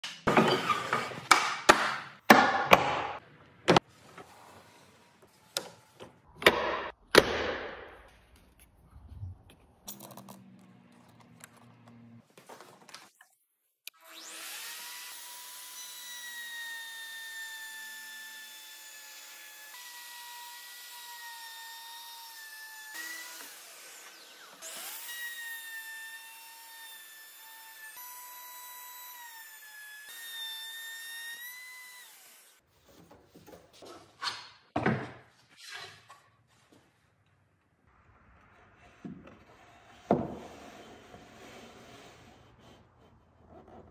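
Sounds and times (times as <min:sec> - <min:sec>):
router whining: 0:13.9 - 0:32.6.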